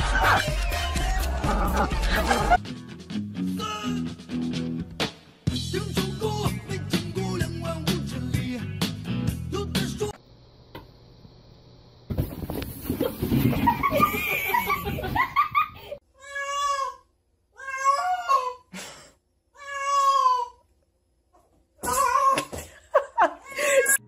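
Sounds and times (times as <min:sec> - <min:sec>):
cat meowing: 0:17.6 - 0:18.5, 0:19.6 - 0:20.5.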